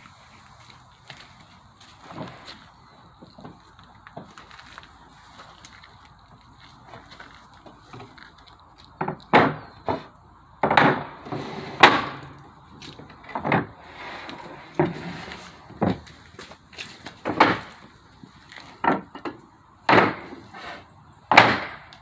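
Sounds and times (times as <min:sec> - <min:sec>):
wooden knocks and scrapes: 0:09.0 - 0:16.5.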